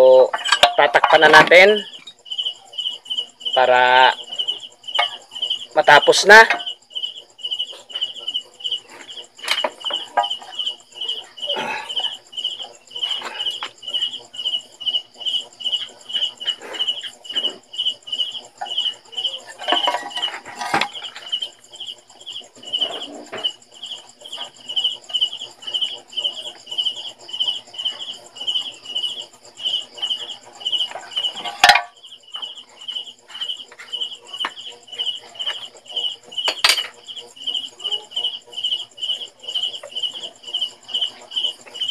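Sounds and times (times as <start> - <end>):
cricket chirping: 0.0 - 41.9
metal cover knocks and scrapes: 19.5 - 21.3, 30.9 - 31.9.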